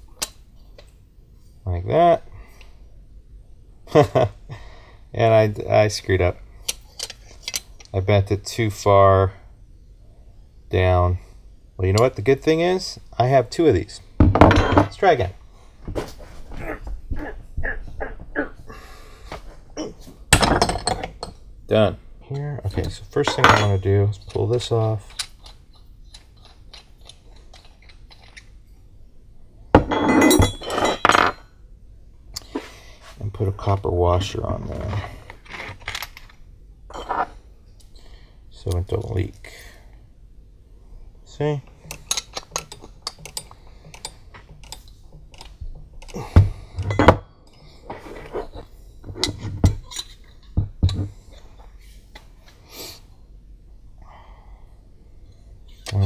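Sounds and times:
wrench clinking on metal: 22.7 - 25.6, 29.9 - 31.5, 41.8 - 46.2
small metallic clicks: 41.7 - 46.2.

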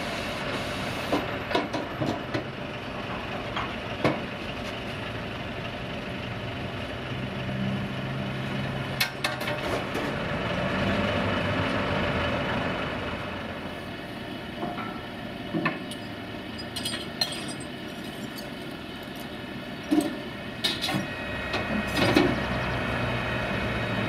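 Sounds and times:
heavy diesel engine running: 0.0 - 24.0
metal chains clinking and knocking: 15.8 - 18.6.

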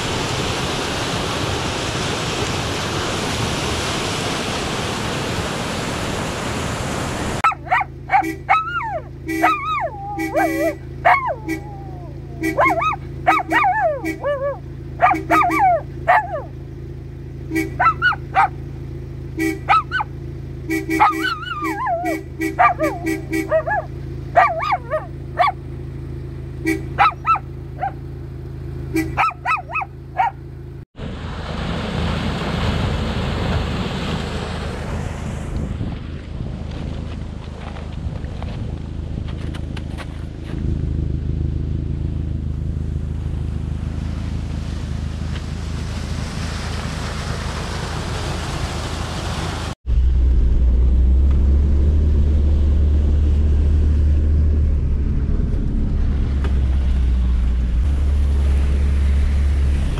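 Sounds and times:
rushing flood water: 0.0 - 8.4, 31.0 - 38.0, 43.6 - 49.8
vehicle horn honks: 8.1 - 8.6, 9.2 - 15.6, 17.4 - 18.0, 19.3 - 19.9, 20.6 - 23.8, 26.6 - 27.1, 28.9 - 29.3
dog howling and yelping: 8.5 - 14.6, 15.3 - 16.5, 24.4 - 25.5.

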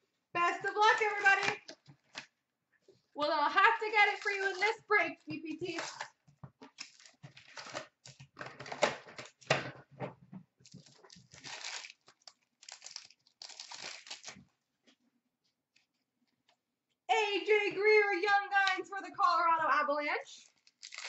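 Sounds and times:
packaging tearing and crinkling: 6.7 - 9.5, 10.6 - 14.5, 20.4 - 21.0
foil packs rustling: 6.8 - 8.8, 10.7 - 14.4, 20.5 - 21.0.

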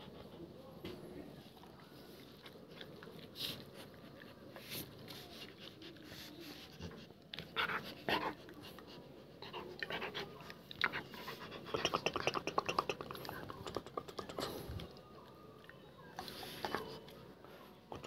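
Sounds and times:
puppy breathing softly: 3.2 - 12.0.

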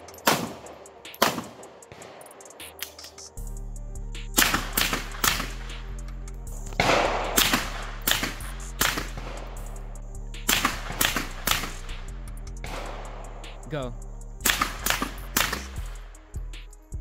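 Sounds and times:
background music with low notes: 0.0 - 17.0
gunshots: 0.2 - 2.9, 4.4 - 5.8, 6.8 - 9.7, 10.5 - 12.0, 12.6 - 13.6, 14.4 - 16.0.

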